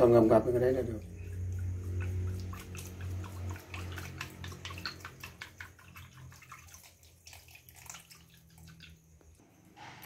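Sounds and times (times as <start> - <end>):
liquid sloshing: 0.9 - 9.4.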